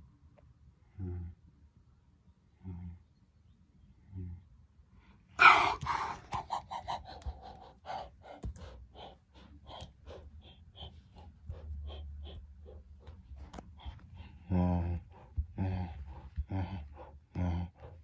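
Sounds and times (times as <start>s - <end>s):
person making breathy mouth sounds: 5.4s - 18.0s.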